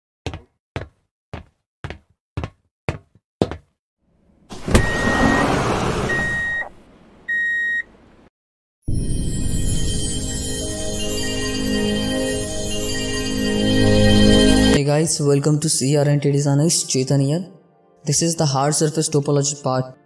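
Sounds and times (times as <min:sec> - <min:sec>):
electronic beep: 0:04.8 - 0:05.5, 0:06.1 - 0:06.7.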